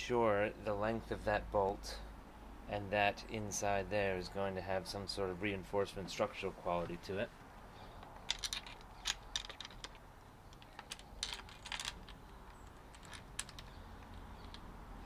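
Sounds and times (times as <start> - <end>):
light clicks and taps of parts: 7.9 - 14.7.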